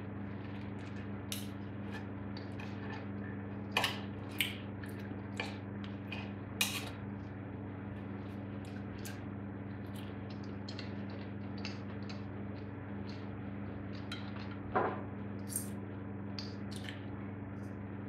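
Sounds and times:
low electrical hum: 0.0 - 18.0
knife and fork scraping a plate: 6.1 - 7.0.

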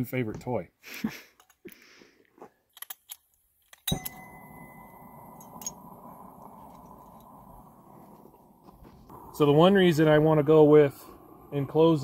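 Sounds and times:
propane torch lighting whoosh: 5.0 - 12.0
torch burning with rushing hiss: 5.2 - 12.0.

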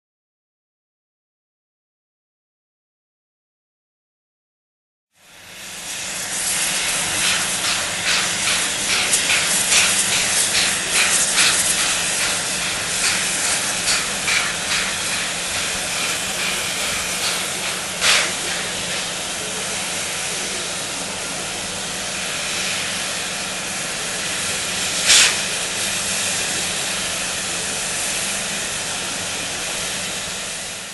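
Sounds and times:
sharp steam blasts: 5.2 - 30.9
short steam puffs: 5.2 - 30.9
steam locomotive hissing: 5.2 - 30.9.

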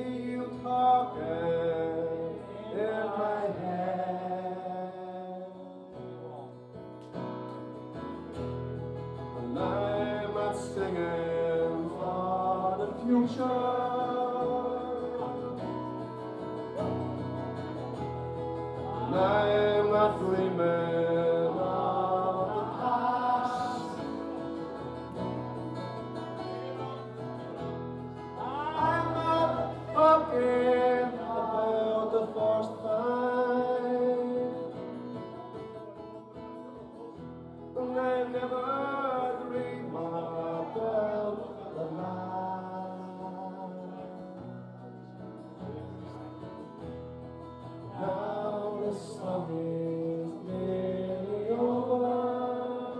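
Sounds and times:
man singing into a microphone: 0.0 - 6.1, 9.4 - 16.0, 18.8 - 24.7, 28.2 - 35.8, 37.6 - 44.4, 47.8 - 52.9
strummed acoustic guitar: 0.0 - 52.9.

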